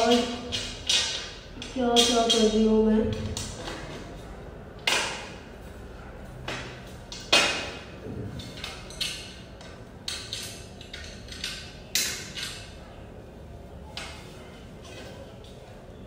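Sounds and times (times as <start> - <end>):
metal tubes knocking and clinking: 0.0 - 3.7, 6.5 - 12.7.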